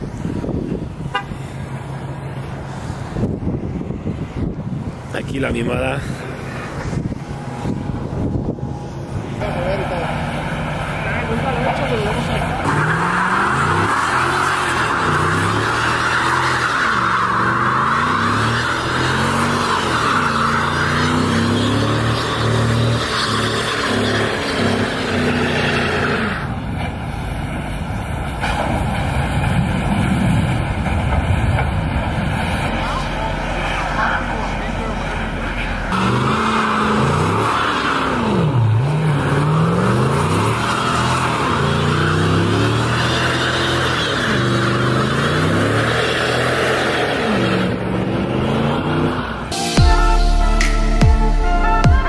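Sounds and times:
car engine revving: 0.0s - 26.6s, 28.5s - 52.0s
tyres screeching: 5.4s - 26.6s, 32.6s - 49.8s.

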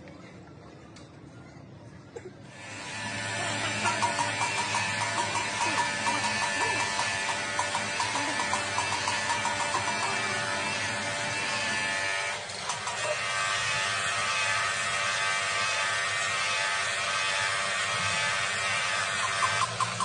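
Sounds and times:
angle grinder grinding metal: 2.6s - 20.0s.

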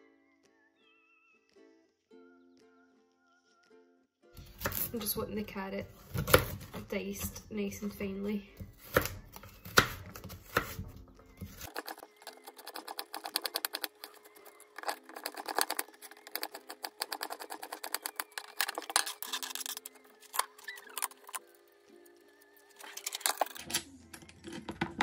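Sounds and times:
knife chopping on plastic board: 4.4s - 5.1s, 6.0s - 7.4s, 8.6s - 20.4s
knife scraping a board: 8.9s - 21.1s.

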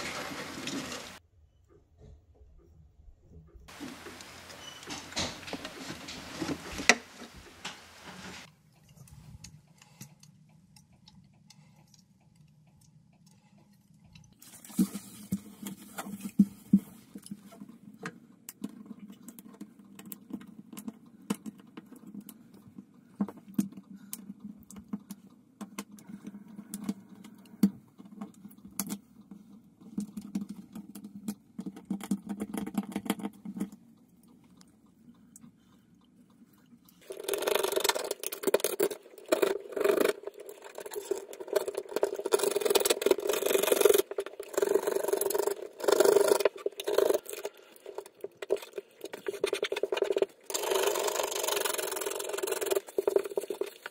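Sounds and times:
fingers scraping sealant: 37.0s - 53.9s.

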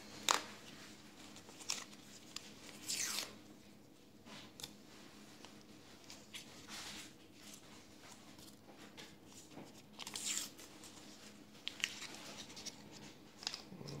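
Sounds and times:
paper packets rustling: 4.4s - 13.7s.

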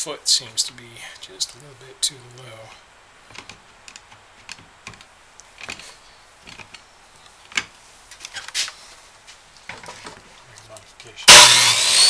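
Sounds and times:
clamp and wood clicking and knocking: 6.4s - 6.8s.

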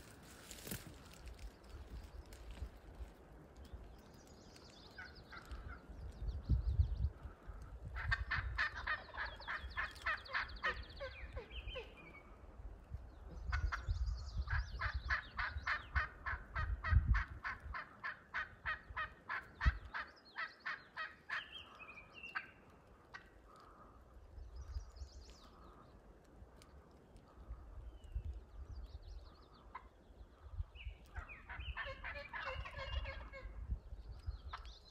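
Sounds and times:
wild turkey calling: 4.6s - 6.0s, 7.2s - 12.5s, 13.4s - 33.7s.

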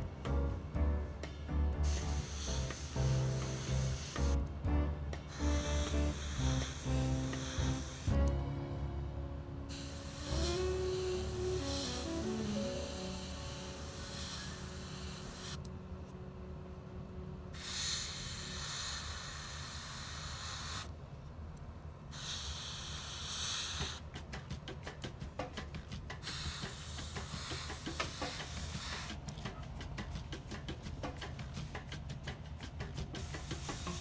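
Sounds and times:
airbrush spraying in hissing bursts: 1.8s - 4.4s, 5.3s - 8.2s, 9.7s - 15.6s, 17.6s - 20.9s, 22.1s - 24.0s, 26.2s - 29.2s, 33.2s - 34.0s.

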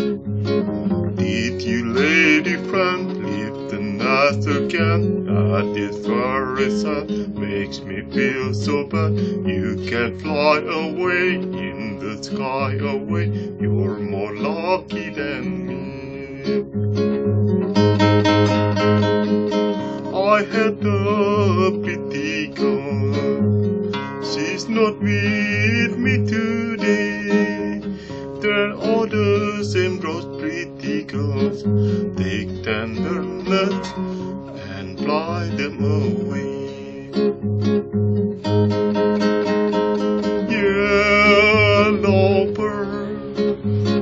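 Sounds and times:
classical guitar fingerpicked: 0.0s - 44.0s
man singing with vibrato: 1.1s - 17.1s, 17.8s - 37.8s, 38.4s - 44.0s.

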